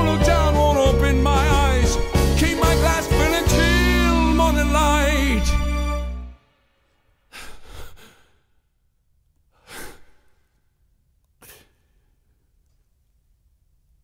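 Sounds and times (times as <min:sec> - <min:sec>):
man breathing out heavily: 0:07.3 - 0:08.6, 0:09.5 - 0:10.5.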